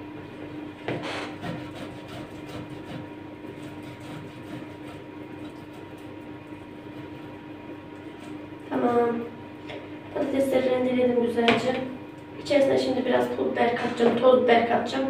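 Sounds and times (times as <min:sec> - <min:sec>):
potato rasping on grater: 0:01.4 - 0:06.1, 0:08.0 - 0:08.5.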